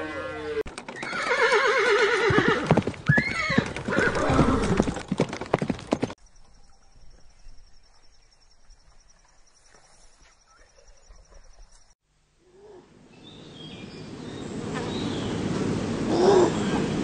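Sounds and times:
horse neighing: 0:00.0 - 0:04.9
galloping hoofbeats: 0:00.7 - 0:06.2.

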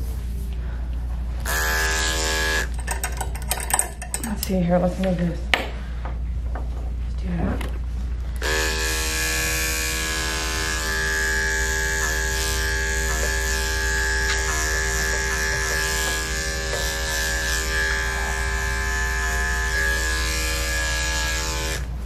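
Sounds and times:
electric clipper humming: 0:01.4 - 0:03.1, 0:08.2 - 0:22.0.

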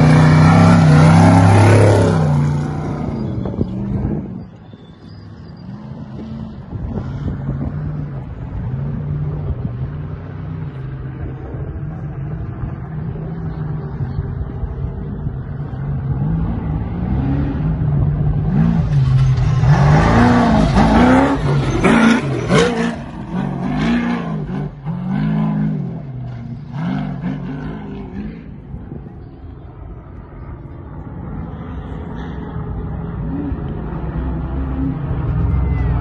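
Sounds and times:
truck engine revving past: 0:00.0 - 0:04.6, 0:15.8 - 0:28.8.

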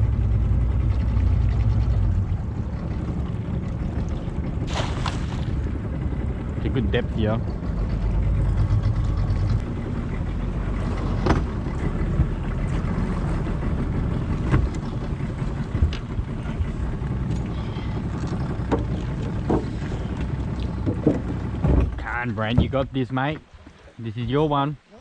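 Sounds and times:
float knocking on boat: 0:10.9 - 0:17.3, 0:18.4 - 0:23.8.

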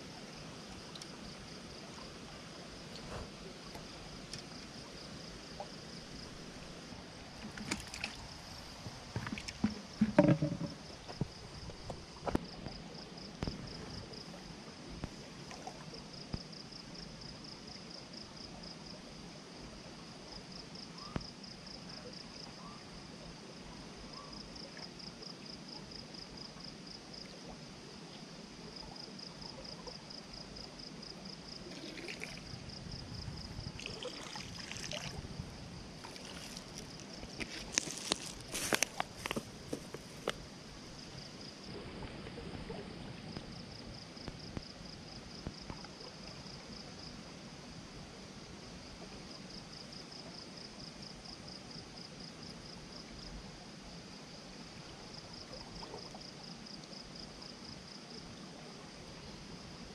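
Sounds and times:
flowing stream water: 0:00.0 - 0:16.5, 0:31.1 - 0:47.8.

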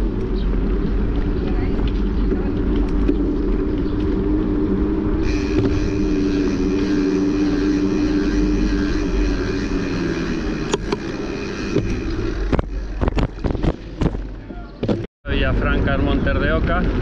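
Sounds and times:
bicycle riding hum: 0:00.0 - 0:17.0
bike knocking and rattling: 0:05.2 - 0:15.1.

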